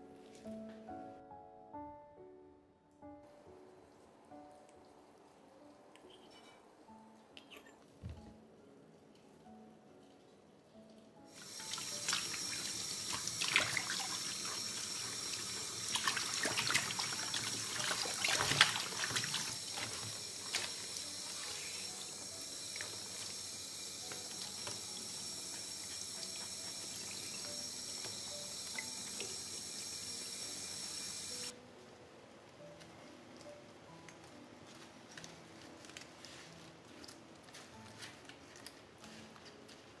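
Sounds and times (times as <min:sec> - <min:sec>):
water running from a tap: 0:11.3 - 0:31.5.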